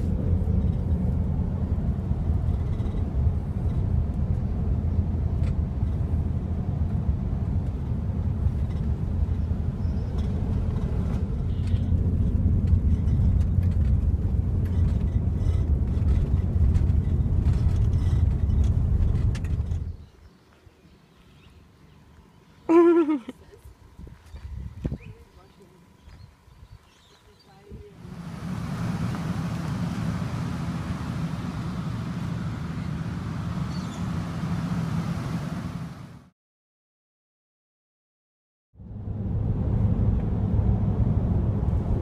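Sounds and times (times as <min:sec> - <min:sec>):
road and engine rumble in car cabin: 0:00.0 - 0:20.1, 0:27.6 - 0:36.3, 0:38.8 - 0:42.0.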